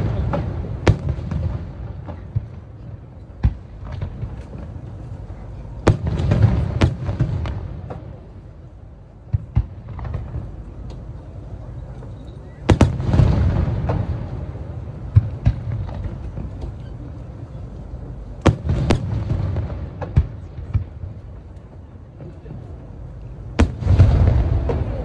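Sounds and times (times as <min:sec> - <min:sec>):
fireworks bangs: 0:00.0 - 0:04.9, 0:05.8 - 0:08.3, 0:09.2 - 0:10.8, 0:12.6 - 0:16.8, 0:18.4 - 0:21.4, 0:23.5 - 0:25.0.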